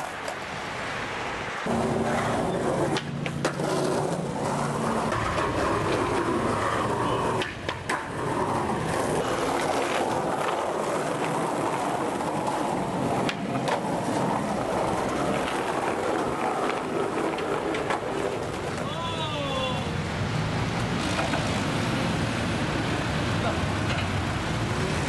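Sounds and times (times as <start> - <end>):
skateboard wheels rolling on concrete: 0.0 - 25.0
skateboard clacking on ground: 1.6 - 19.1, 21.0 - 21.6, 23.5 - 24.4.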